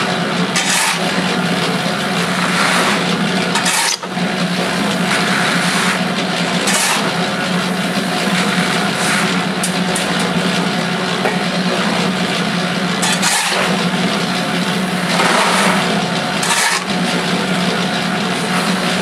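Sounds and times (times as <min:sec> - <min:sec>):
cement mixer humming: 0:00.0 - 0:19.0
shovel scraping into stone: 0:00.6 - 0:07.2, 0:08.1 - 0:09.4, 0:13.0 - 0:13.8, 0:14.8 - 0:17.0.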